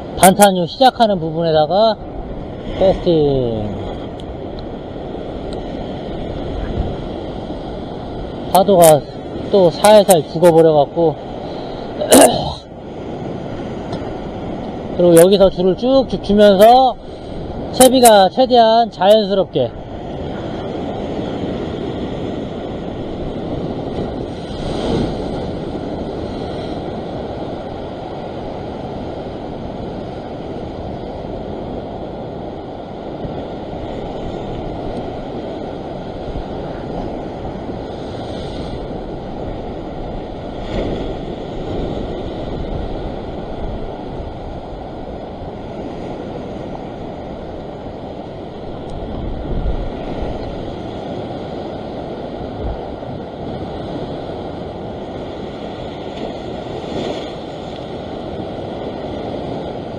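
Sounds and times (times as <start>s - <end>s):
ocean waves breaking on rocks: 0.0s - 59.9s
wind buffeting microphone: 2.0s - 8.6s, 19.5s - 59.9s.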